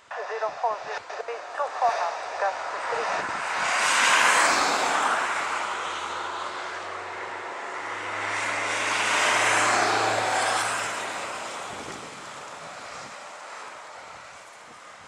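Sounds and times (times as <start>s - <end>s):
jet engines rushing: 0.0s - 14.9s.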